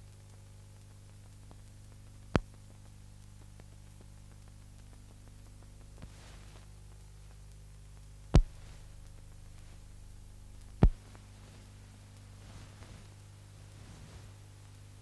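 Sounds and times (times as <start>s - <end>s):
low electrical hum and hiss: 0.0s - 15.0s
sharp pops: 8.3s - 9.9s, 10.6s - 11.6s.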